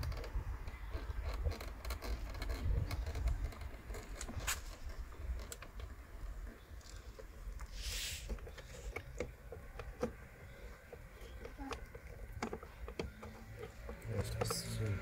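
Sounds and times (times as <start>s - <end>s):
short hiss: 7.7s - 8.3s.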